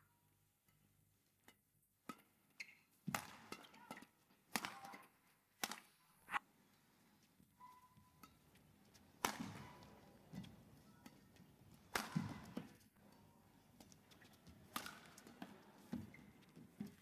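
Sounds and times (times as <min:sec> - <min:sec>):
racket hitting shuttlecock: 0:01.4 - 0:06.4, 0:07.8 - 0:12.8, 0:14.6 - 0:16.9.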